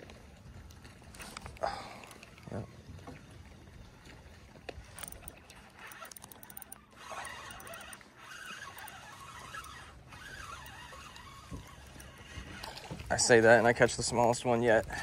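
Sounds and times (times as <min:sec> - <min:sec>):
fishing reel cranking: 0:04.8 - 0:13.1
squeaky whine of turning reel: 0:04.9 - 0:13.4.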